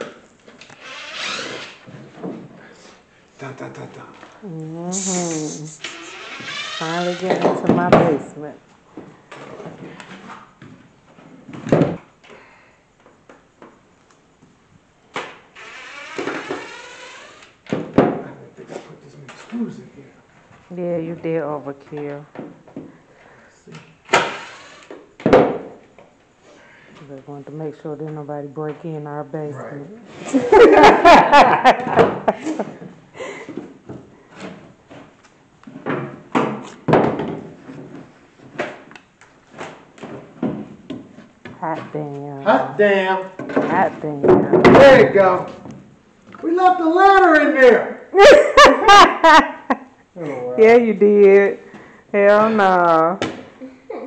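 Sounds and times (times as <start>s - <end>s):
cordless drill motor whine: 0.8s - 1.8s
wooden panels knocking and scraping: 7.2s - 8.3s, 31.4s - 32.9s, 33.5s - 38.9s, 43.4s - 45.9s.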